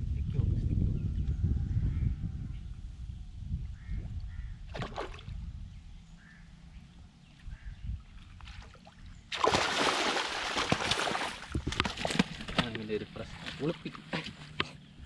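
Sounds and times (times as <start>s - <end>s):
fish thrashing and splashing: 8.5s - 13.8s.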